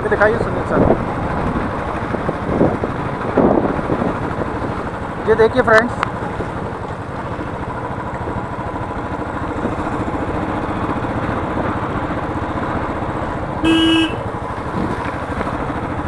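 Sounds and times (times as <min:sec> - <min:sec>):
motorcycle engine running: 0:00.0 - 0:16.0
road and wind noise: 0:00.0 - 0:16.0
horn blaring: 0:13.6 - 0:14.3.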